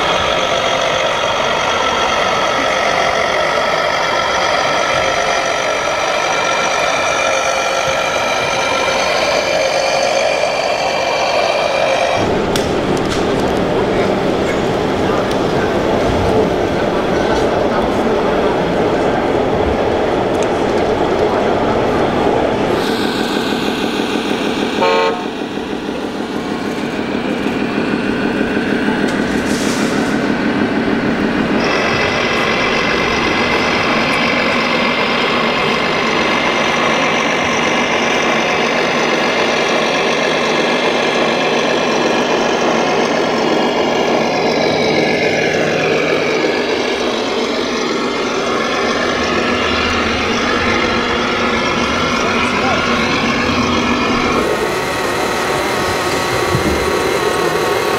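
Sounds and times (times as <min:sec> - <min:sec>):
model truck engine drone: 0:00.0 - 0:57.9
model truck horn: 0:24.8 - 0:25.4.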